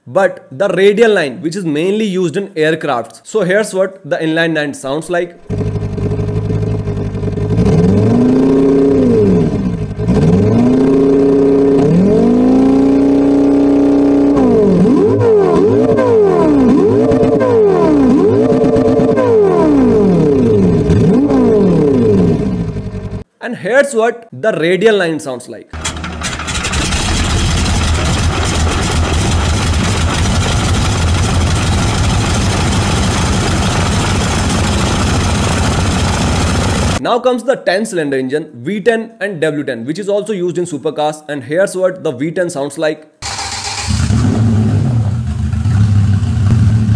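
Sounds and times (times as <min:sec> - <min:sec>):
engine idling and revving: 0:05.4 - 0:23.2, 0:25.8 - 0:37.0, 0:43.2 - 0:46.9.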